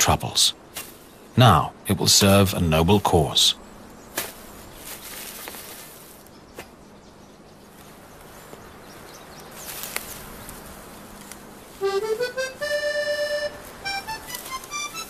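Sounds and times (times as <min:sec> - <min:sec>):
outdoor hiss: 0:00.0 - 0:06.5, 0:07.7 - 0:15.0
music with rising notes: 0:11.8 - 0:15.0.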